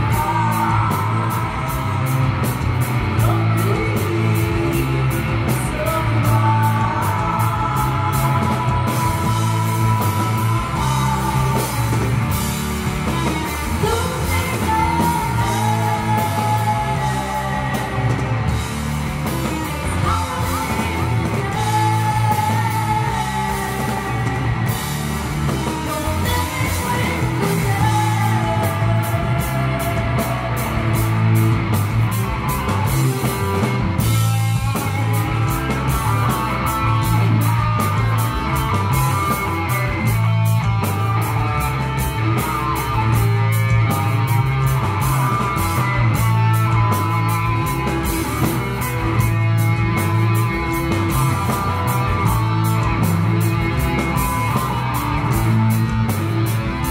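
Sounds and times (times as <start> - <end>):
woman singing: 0.0 - 2.4, 3.1 - 31.1
bass guitar: 0.0 - 56.9
drums and cymbals: 0.0 - 56.9
electric guitar: 0.0 - 56.9
keyboards: 0.0 - 56.9.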